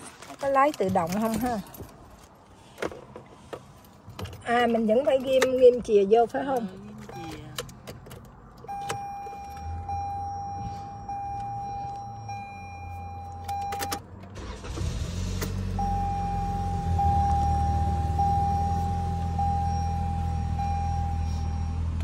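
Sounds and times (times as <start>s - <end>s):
car engine starting and idling: 3.0s - 22.0s
dashboard warning chime: 7.0s - 7.7s, 8.6s - 14.0s, 15.6s - 22.0s.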